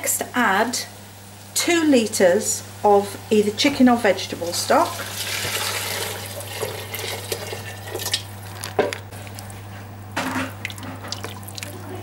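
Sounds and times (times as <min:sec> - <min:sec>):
liquid pouring into pot: 0:04.9 - 0:09.6, 0:10.6 - 0:11.8.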